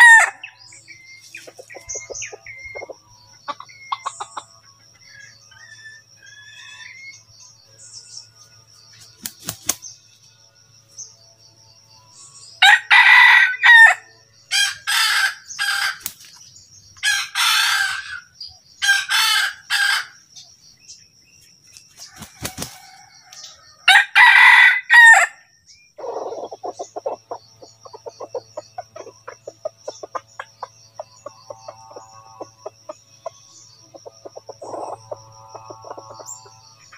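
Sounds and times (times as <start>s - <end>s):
rooster crowing: 0.0s - 0.5s, 12.6s - 16.0s, 22.0s - 25.4s.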